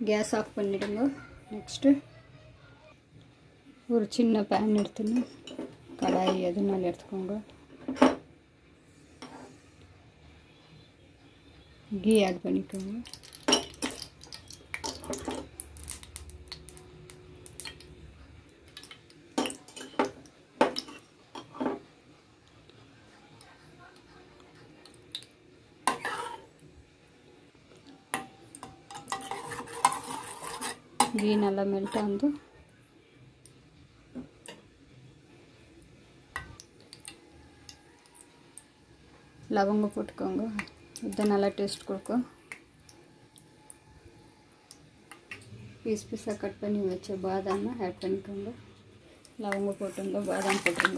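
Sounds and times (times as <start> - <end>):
metal spoon scraping a pan: 9.1 - 9.6, 25.8 - 26.5, 28.2 - 32.3, 49.7 - 50.9
ghee ticking and popping in pan: 12.2 - 21.0, 35.8 - 38.7.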